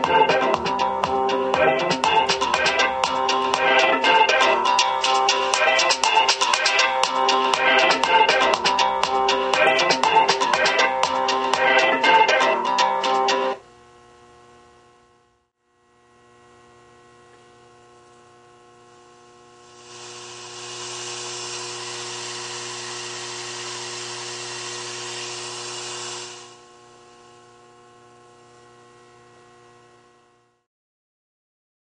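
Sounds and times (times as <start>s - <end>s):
amplifier hum: 0.0s - 30.6s
speaker hiss: 18.9s - 26.6s.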